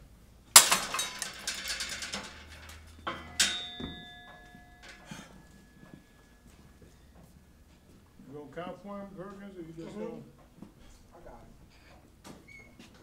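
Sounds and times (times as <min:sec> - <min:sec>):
metal gym weights clanking: 0:00.6 - 0:06.9.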